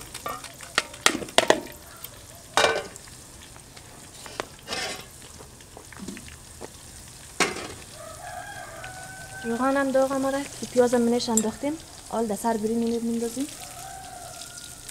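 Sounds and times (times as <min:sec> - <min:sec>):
low sizzle of cooking: 0:00.0 - 0:14.9
pot lid and basins clanking: 0:00.2 - 0:01.8, 0:02.5 - 0:03.0, 0:04.6 - 0:05.1, 0:07.4 - 0:07.8.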